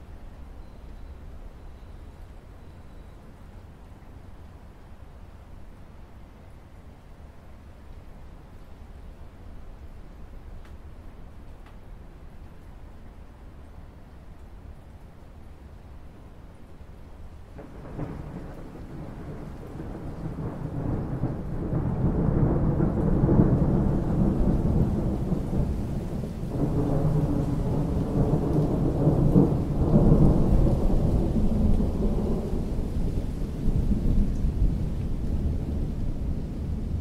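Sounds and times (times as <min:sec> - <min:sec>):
rain falling on water: 0:00.0 - 0:37.0
deep thunder rolling: 0:17.6 - 0:37.0.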